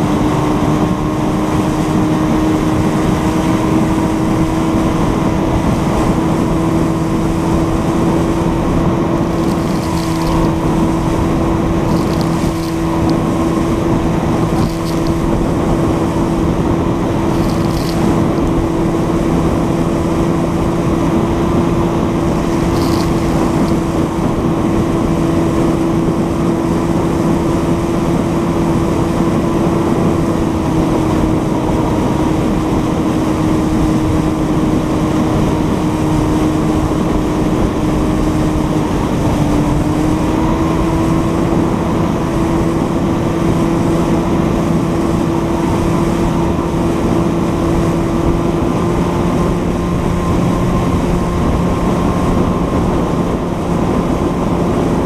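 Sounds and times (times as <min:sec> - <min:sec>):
outboard motor running: 0:00.0 - 0:55.0
water rushing: 0:04.6 - 0:27.1.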